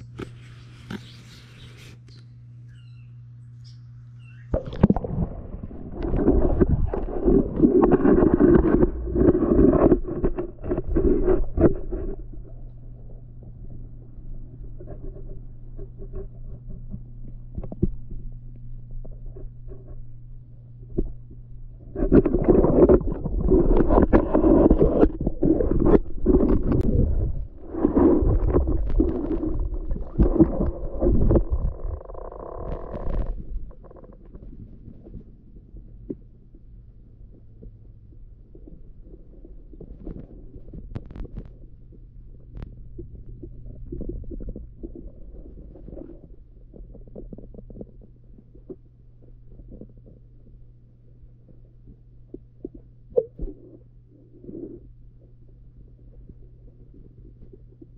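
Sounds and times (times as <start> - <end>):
low rumble: 3.9 - 57.9
muffled underwater sloshing: 4.4 - 57.9
knocks underwater: 4.5 - 12.6, 15.8 - 18.3, 21.9 - 35.3
muffled water swishing: 4.6 - 18.4, 19.2 - 57.9.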